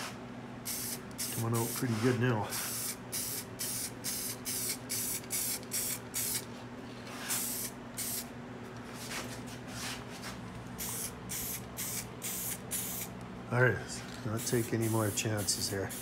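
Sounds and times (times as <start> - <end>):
steady low hum: 0.0 - 16.0
aerosol spray can hissing: 2.6 - 6.4, 7.3 - 8.2, 10.8 - 13.1, 14.4 - 16.0.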